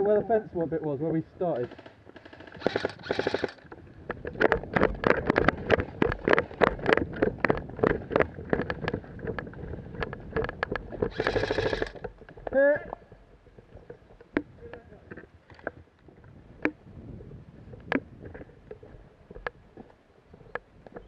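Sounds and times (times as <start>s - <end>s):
gear rattling: 1.5s - 14.4s
footsteps crunching on dirt: 2.8s - 21.0s.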